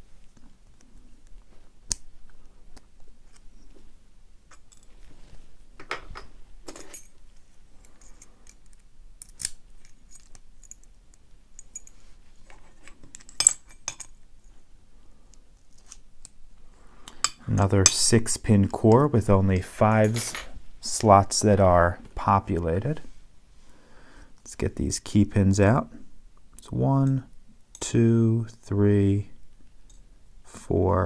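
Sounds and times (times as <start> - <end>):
padlock parts clicking and clinking: 7.8 - 12.0, 13.1 - 14.2.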